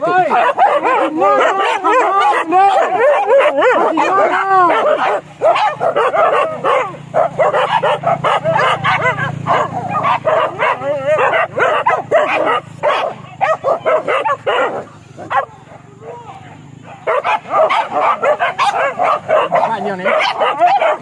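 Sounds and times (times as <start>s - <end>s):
dogs yelping and barking: 0.0s - 21.0s.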